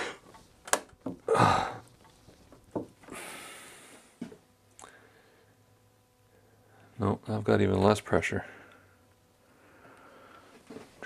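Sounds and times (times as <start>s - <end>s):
strained breath of effort: 1.3s - 1.9s, 3.1s - 4.2s
long breath out: 3.1s - 4.2s.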